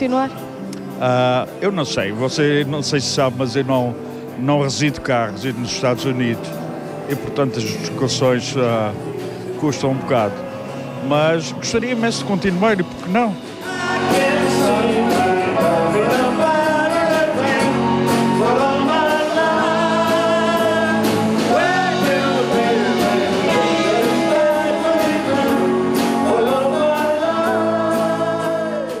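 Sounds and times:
man singing: 1.0 - 29.0
electric guitars: 5.4 - 29.0
bass guitar: 5.6 - 29.0.

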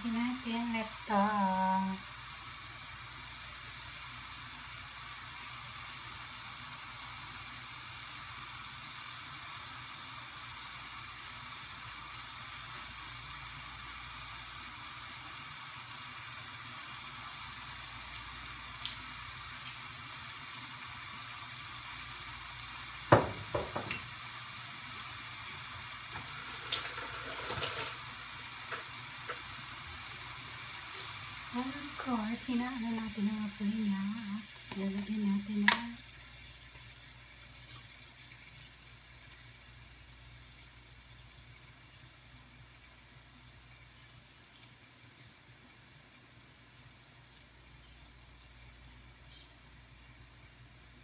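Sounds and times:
food sizzling in a frying pan: 0.0 - 51.0.

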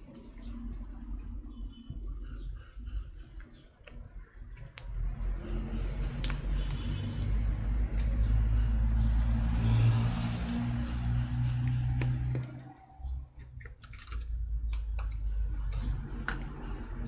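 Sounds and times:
slime squishing and clicking: 3.4 - 5.3.

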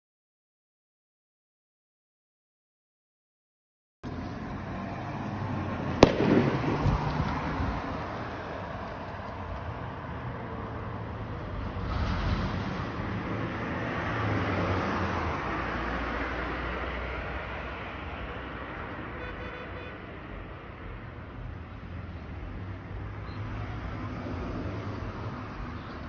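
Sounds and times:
street traffic noise: 4.0 - 26.0
sharp bang echoing: 6.0 - 7.5.

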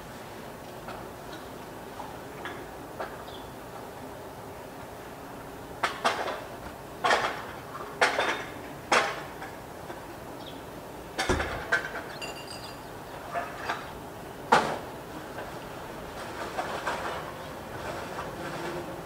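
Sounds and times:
steady background noise: 0.0 - 19.0.

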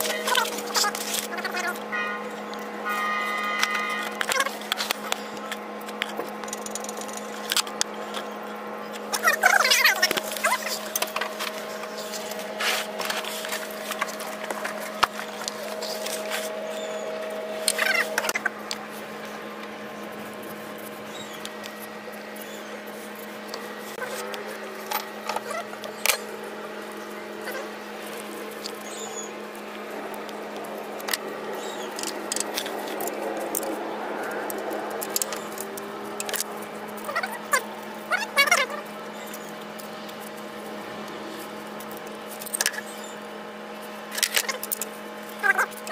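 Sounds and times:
steady hum: 0.0 - 45.9
hand tools clicking on engine: 30.1 - 37.6.

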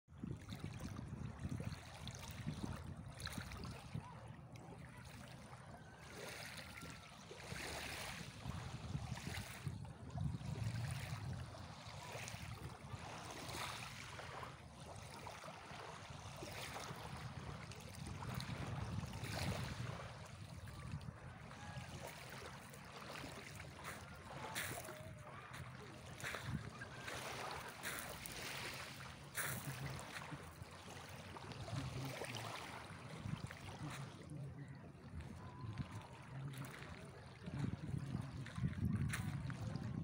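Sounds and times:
waves lapping on pebble shore: 6.0 - 9.7, 10.5 - 34.7.

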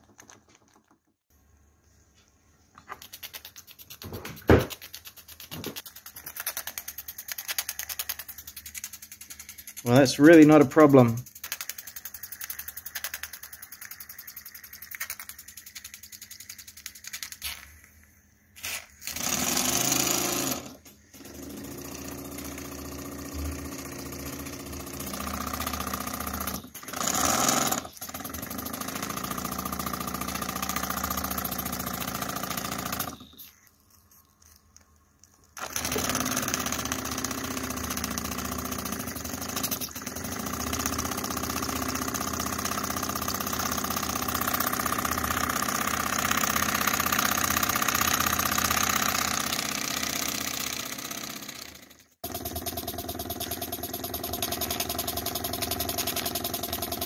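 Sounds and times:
model steam crane engine running: 6.6 - 16.9, 19.8 - 33.3, 35.6 - 57.0.

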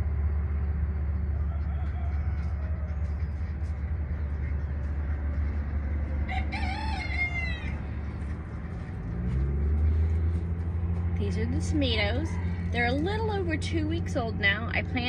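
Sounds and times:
low rumble: 0.0 - 15.0
rooster crowing: 1.3 - 3.4, 6.2 - 8.1, 12.0 - 12.8.

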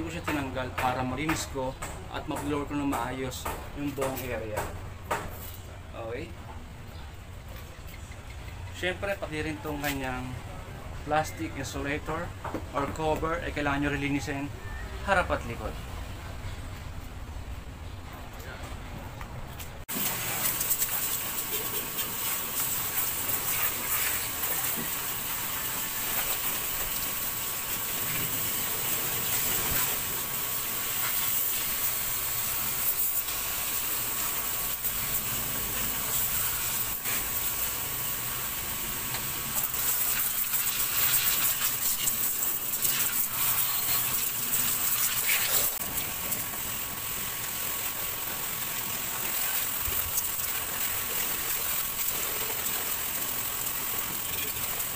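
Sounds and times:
pressure washer jet hissing: 19.9 - 54.9.

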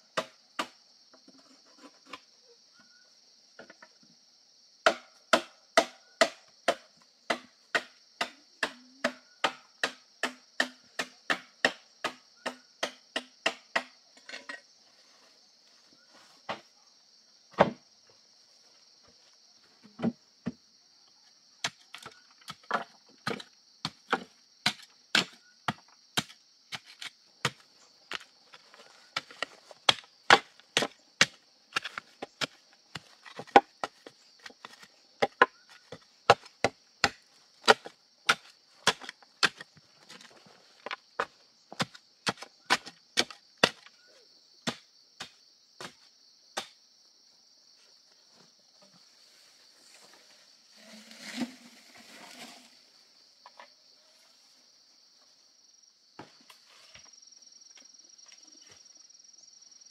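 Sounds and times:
wooden stick tamping earth: 21.6 - 44.0, 50.8 - 52.8.

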